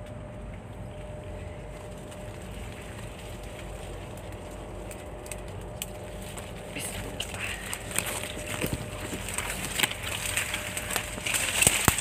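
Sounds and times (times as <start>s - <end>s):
microphone handling rumble: 5.9s - 12.0s.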